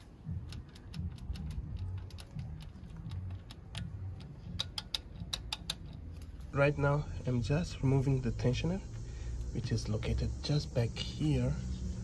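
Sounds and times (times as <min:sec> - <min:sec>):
chain rattling clicks: 0:00.0 - 0:06.5.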